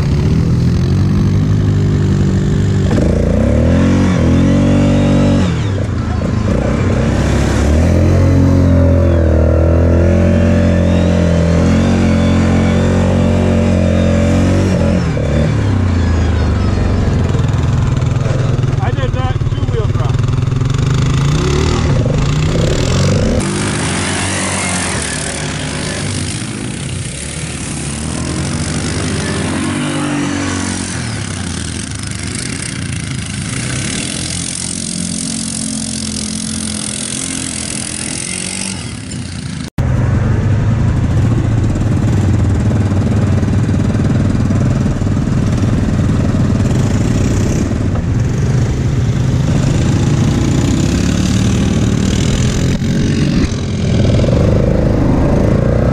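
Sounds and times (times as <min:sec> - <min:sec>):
distant quad revving: 0:00.0 - 0:55.9
quad engine being ridden: 0:00.0 - 0:55.9
quad idling: 0:16.0 - 0:23.7.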